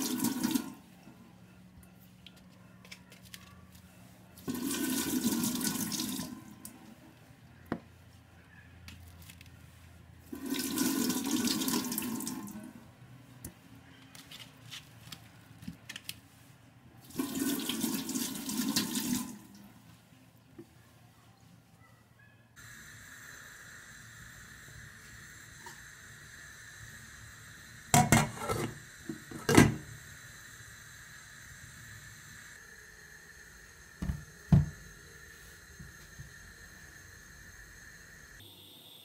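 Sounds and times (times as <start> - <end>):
kitchen tap water running: 0.0 - 0.8, 4.4 - 6.8, 10.3 - 12.7, 17.1 - 19.7, 22.7 - 38.3.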